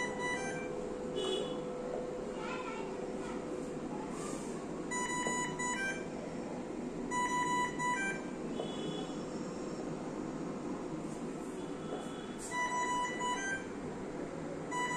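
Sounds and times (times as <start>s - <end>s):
electronic alarm beeping: 0.0s - 1.6s, 4.9s - 6.1s, 7.1s - 9.9s, 12.1s - 13.8s, 14.7s - 14.9s.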